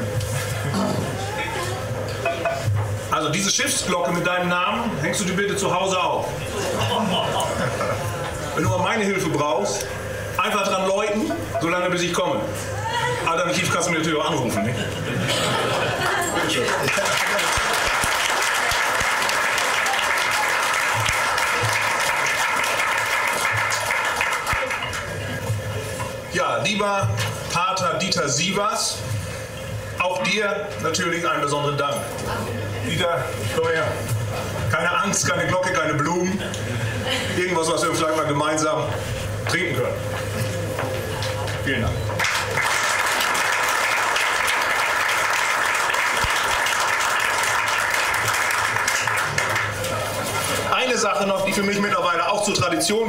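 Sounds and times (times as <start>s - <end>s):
people applauding: 15.4s - 26.0s, 42.1s - 50.7s.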